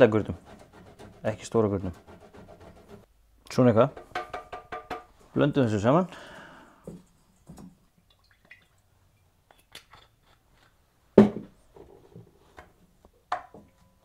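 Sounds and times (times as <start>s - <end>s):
knock on steel bowl: 4.0s - 5.1s.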